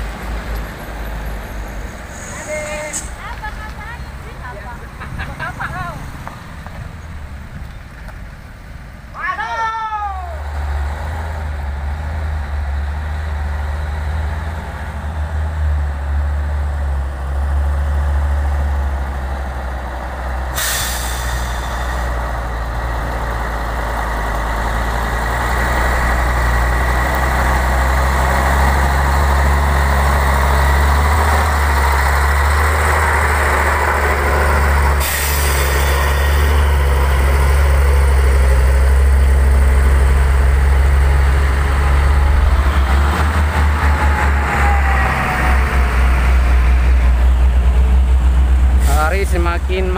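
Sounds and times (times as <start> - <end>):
diesel truck engine drone: 0.0 - 49.9
air brake hisses: 2.1 - 3.2, 20.6 - 22.2, 35.0 - 36.2.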